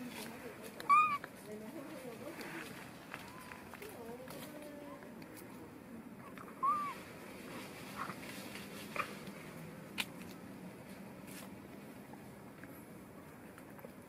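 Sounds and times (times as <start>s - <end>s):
young monkeys calling: 0.8s - 1.3s, 6.2s - 7.0s.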